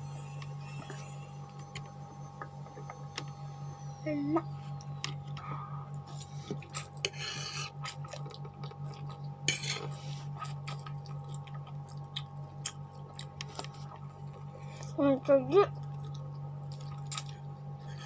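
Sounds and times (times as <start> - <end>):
fork scraping a plate: 7.0 - 7.9, 9.5 - 10.2.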